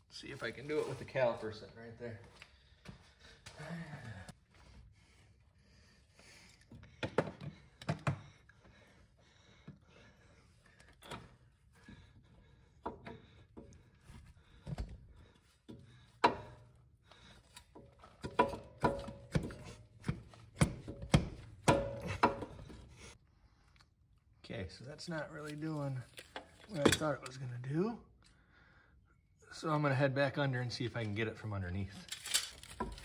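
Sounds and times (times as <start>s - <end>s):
metal knocks and clunks: 17.8s - 22.9s.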